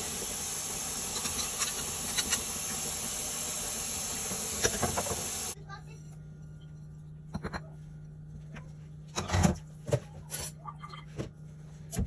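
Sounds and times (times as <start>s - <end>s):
steady low hum: 5.5s - 12.0s.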